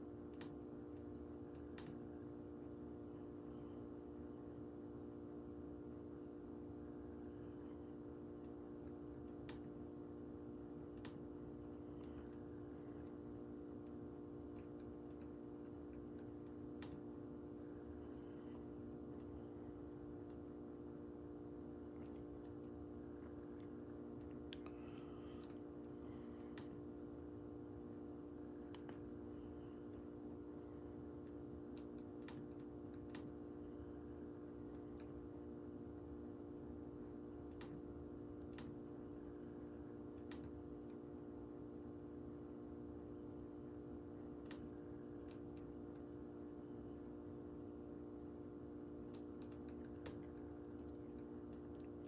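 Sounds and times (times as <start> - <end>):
low electrical hum: 0.0 - 52.0
faint clicks: 0.3 - 2.1, 8.4 - 9.8, 10.8 - 19.5, 21.9 - 26.9, 28.6 - 30.2, 31.1 - 34.0, 37.4 - 38.9, 40.0 - 41.0, 44.3 - 46.2, 49.0 - 52.0.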